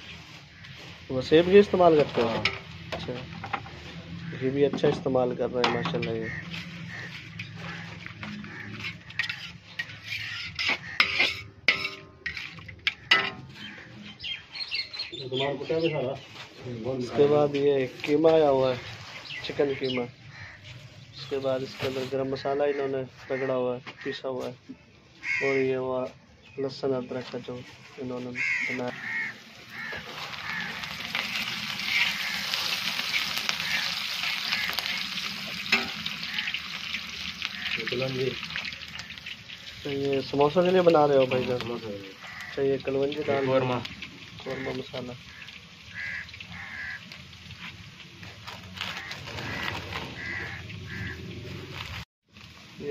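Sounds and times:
onions frying: 0.0 - 24.1, 26.8 - 52.9
metal ladle scraping iron pan: 4.7 - 13.8, 28.4 - 37.8.

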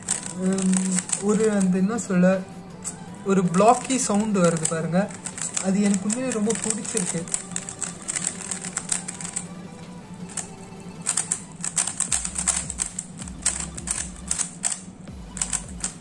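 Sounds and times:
plastic puzzle cube clacking: 0.0 - 1.6, 3.8 - 9.4, 10.3 - 16.0.

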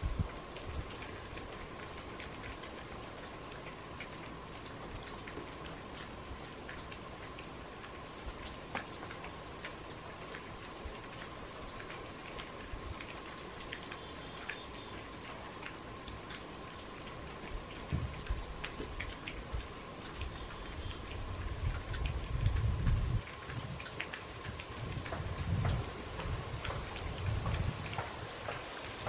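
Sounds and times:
melting snow dripping off roof: 0.0 - 29.0.

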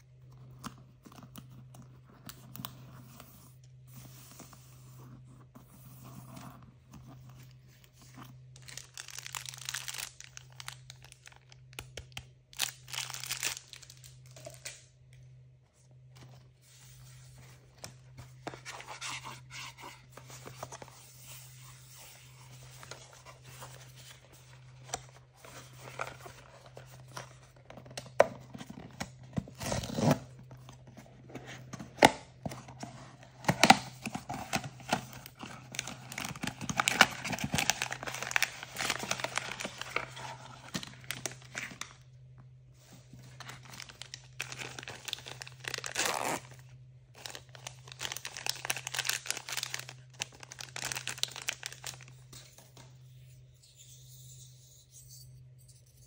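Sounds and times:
packaging tearing and crinkling: 8.6 - 14.8, 33.4 - 41.9, 43.2 - 52.3.

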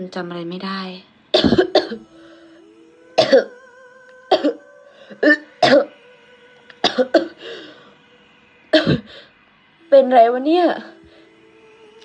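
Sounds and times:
man coughing: 1.4 - 2.1, 3.2 - 3.6, 5.2 - 5.9, 6.8 - 7.3.

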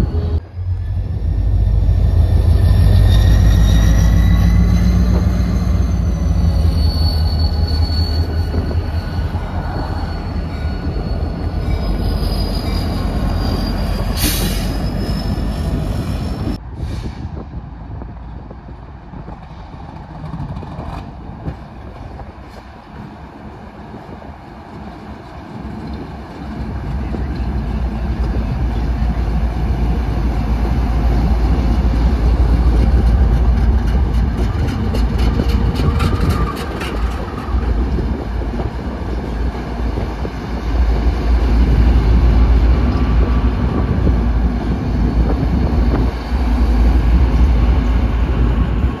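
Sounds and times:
locomotive engine rumble: 19.4 - 49.0.

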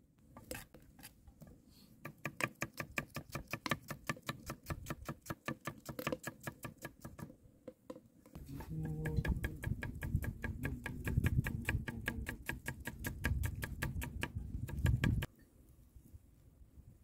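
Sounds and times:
knife chopping on wooden block: 8.6 - 15.3.

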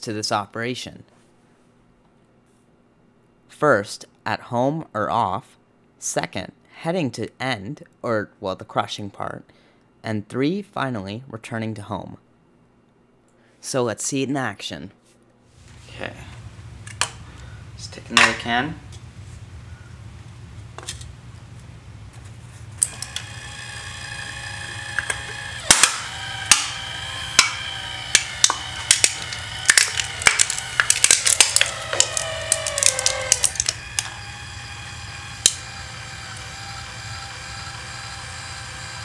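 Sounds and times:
electric actuator motor whining: 22.8 - 39.0
can crumpling with cracks: 24.9 - 34.3.

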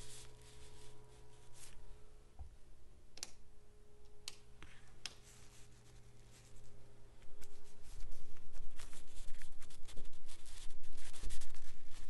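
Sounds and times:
rustling and scraping: 0.0 - 1.8, 4.6 - 12.0
low steady hum: 0.0 - 12.0.

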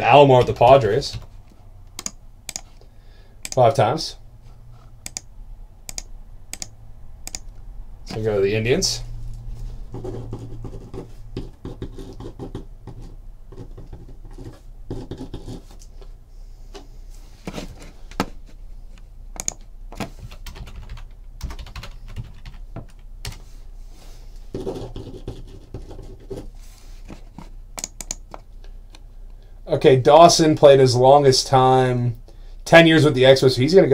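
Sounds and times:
computer keyboard typing: 1.9 - 2.8, 3.4 - 3.7, 5.0 - 5.3, 5.9 - 7.5, 19.4 - 23.4, 27.8 - 28.4
clicks and scratching at a desk: 10.0 - 16.1, 24.5 - 28.4.

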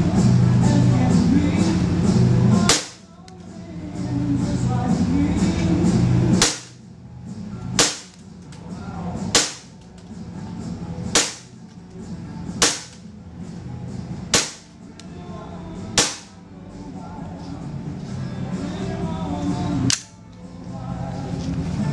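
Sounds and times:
airsoft pistol shots: 2.7 - 3.0, 6.4 - 6.8, 7.8 - 8.2, 9.4 - 9.7, 11.1 - 11.6, 12.6 - 13.0, 14.3 - 14.7, 16.0 - 16.4.

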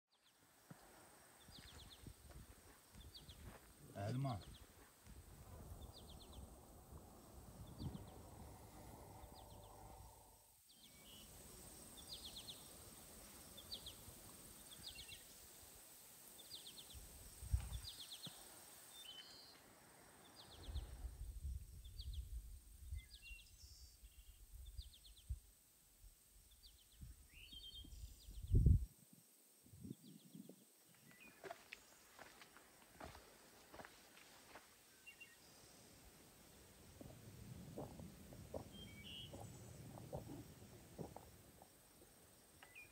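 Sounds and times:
faint hiss: 0.1 - 42.9
wind rumble on microphone: 4.4 - 10.5, 16.9 - 18.0, 20.5 - 25.5, 26.9 - 29.0, 36.8 - 42.1
bird chirping call: 38.5 - 40.4.

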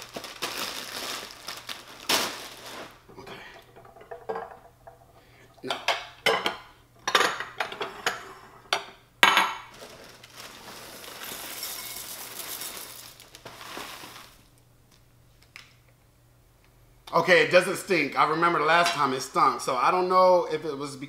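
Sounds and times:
glass bowls clinking: 3.2 - 13.2
cereal poured into a bowl: 9.7 - 14.5.

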